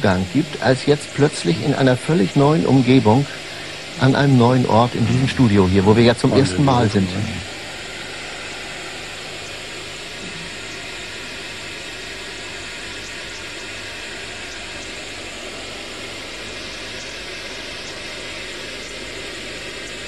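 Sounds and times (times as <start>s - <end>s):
faint low hum: 0.0s - 11.6s
white noise hiss: 0.0s - 20.0s.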